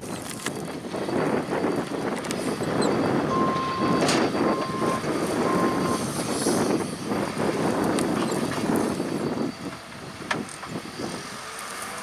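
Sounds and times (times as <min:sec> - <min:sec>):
diesel engine running: 0:00.0 - 0:12.0
rough gusty noise: 0:00.8 - 0:11.5
warning beeper: 0:02.9 - 0:06.1.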